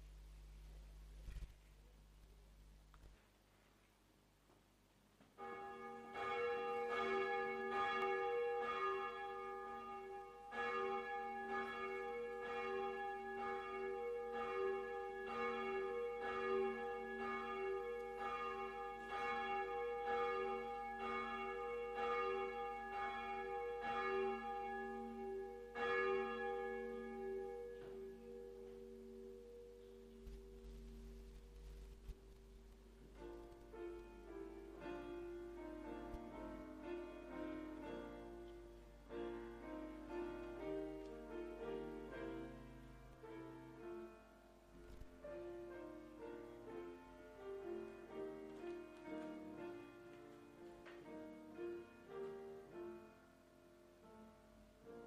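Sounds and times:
church bell tolling: 5.4s - 32.3s.

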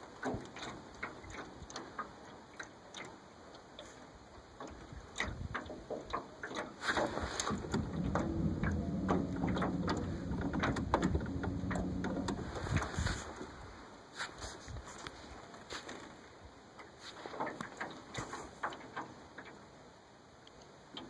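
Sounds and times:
small waves lapping: 0.0s - 21.0s
steady low hum: 7.5s - 13.4s.

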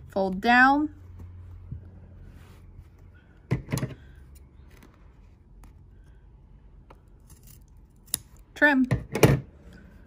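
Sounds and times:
faint fabric handling: 0.9s - 6.8s.

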